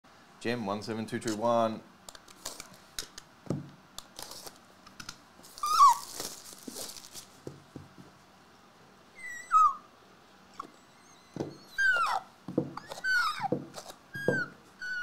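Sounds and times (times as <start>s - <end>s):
cardboard packs rustling: 4.2s - 4.6s, 5.4s - 7.6s
falling squeaks: 5.5s - 6.3s, 10.6s - 15.0s.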